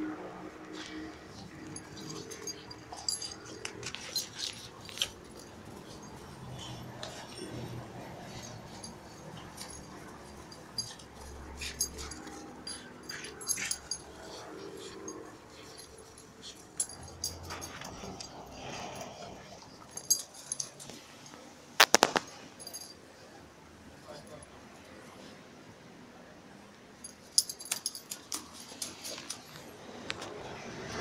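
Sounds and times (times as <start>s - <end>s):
puppy sounds: 0.0s - 21.4s.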